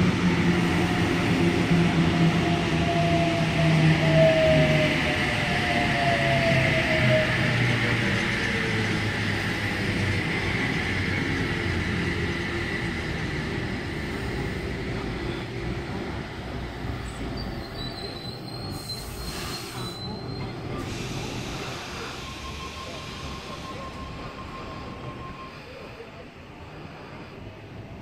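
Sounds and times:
high wheel squeal: 17.0s - 26.1s.

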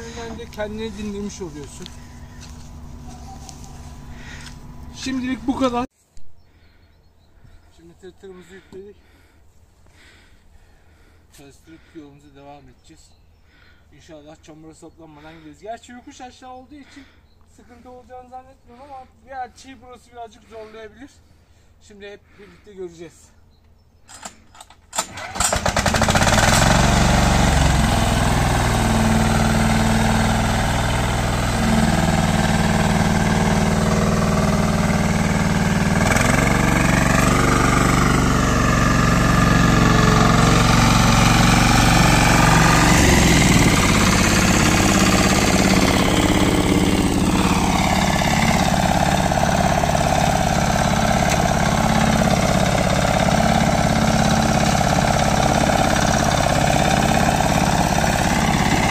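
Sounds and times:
tractor engine running: 0.0s - 5.9s, 24.9s - 58.9s.

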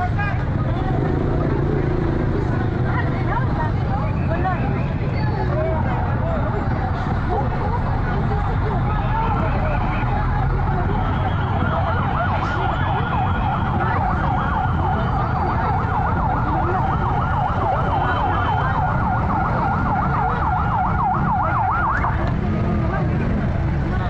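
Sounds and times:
street traffic rumble: 0.0s - 24.0s
siren yelping: 9.3s - 22.3s.

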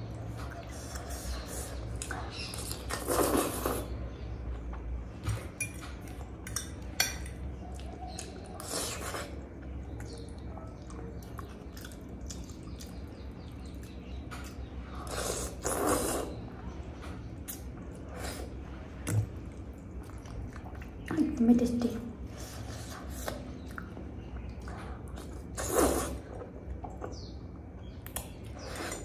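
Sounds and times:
slurping soup: 2.5s - 4.0s, 14.9s - 16.5s, 25.2s - 26.4s
wet chewing: 7.6s - 16.4s, 17.4s - 21.2s, 22.4s - 29.0s.

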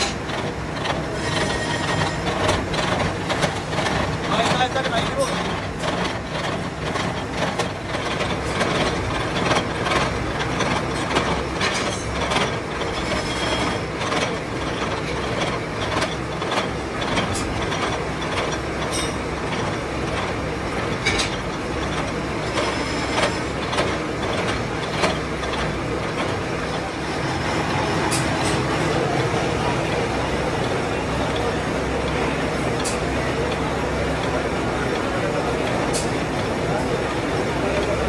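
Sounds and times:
machine running noise: 0.0s - 38.0s.

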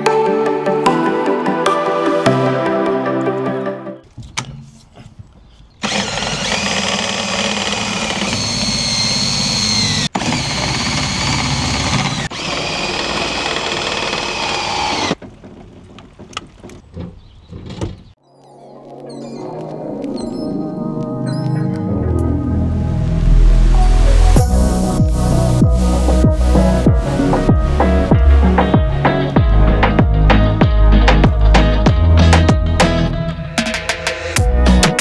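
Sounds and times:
cordless drill whining under load: 5.8s - 15.2s.

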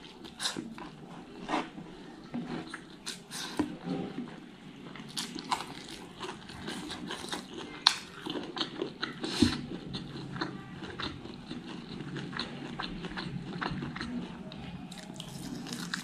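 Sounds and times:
person chewing with wet smacks: 4.9s - 16.0s.

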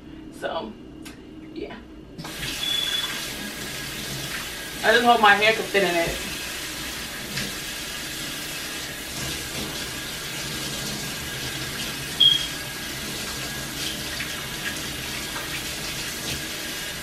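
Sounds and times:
high squeak: 2.6s - 3.1s
tap water splashing into sink: 7.2s - 7.6s, 9.1s - 16.6s.

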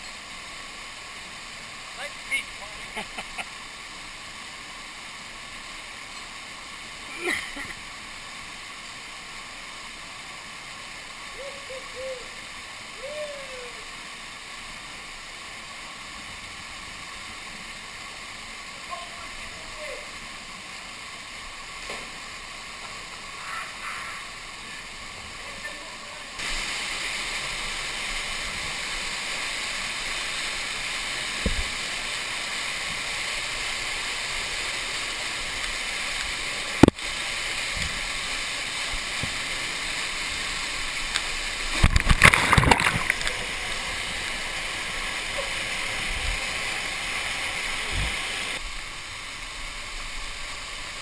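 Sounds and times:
waterfall rushing: 0.0s - 51.0s
rough burst of splashing: 41.6s - 44.7s.

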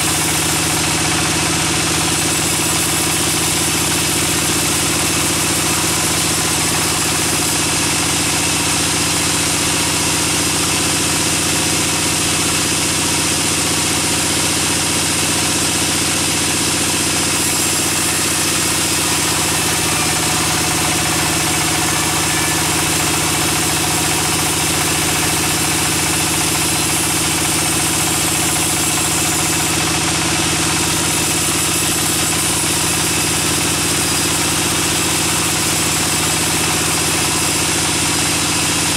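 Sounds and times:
band saw cutting log: 0.0s - 38.9s.

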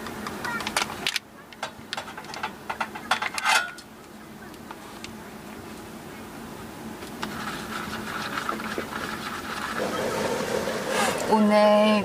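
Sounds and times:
steady low hum: 0.0s - 12.0s
camping kettle being handled: 0.6s - 3.9s
stirrer clinking in paper cup: 7.2s - 9.9s.

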